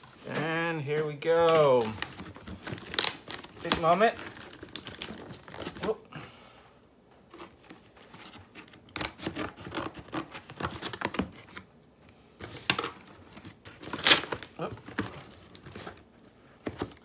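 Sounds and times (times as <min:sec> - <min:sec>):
cardboard and tape tearing: 0:01.4 - 0:06.0, 0:07.3 - 0:11.7, 0:12.8 - 0:16.0.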